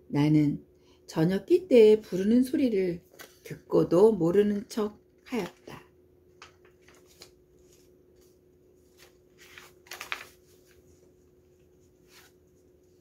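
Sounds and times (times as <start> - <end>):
low steady hum: 0.0 - 13.0
paper rustling and sliding: 6.3 - 13.0.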